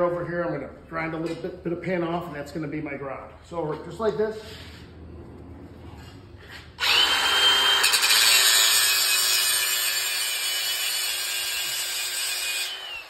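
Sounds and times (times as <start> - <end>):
angle grinder whining on metal: 6.4 - 13.0.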